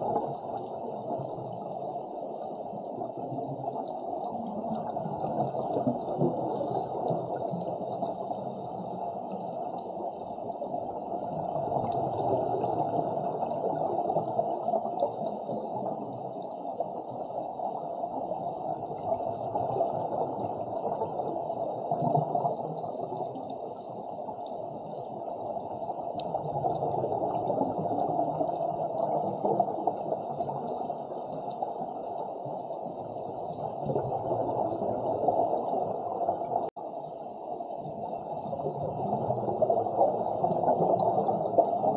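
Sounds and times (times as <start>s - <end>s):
muffled underwater rush: 0.0s - 41.9s.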